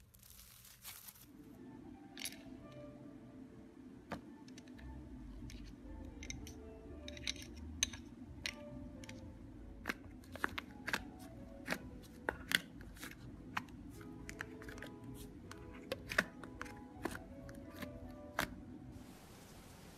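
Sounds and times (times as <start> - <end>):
slime crackling and popping: 0.0 - 1.3
soft background music: 0.4 - 19.9.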